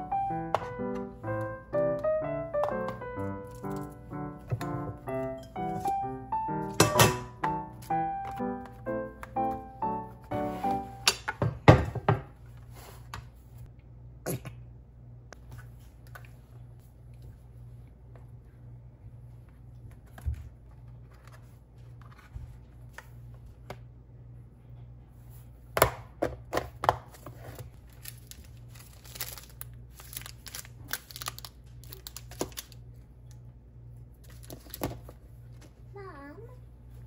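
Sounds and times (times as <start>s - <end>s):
wrappers crinkling: 27.8s - 32.8s.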